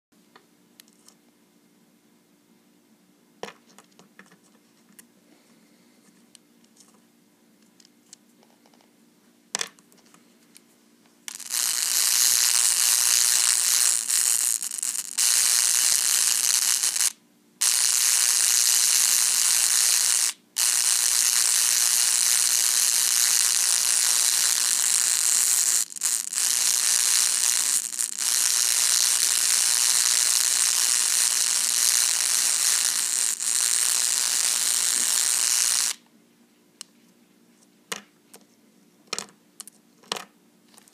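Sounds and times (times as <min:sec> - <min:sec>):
soldering gun harsh buzz: 0:11.3 - 0:36.0.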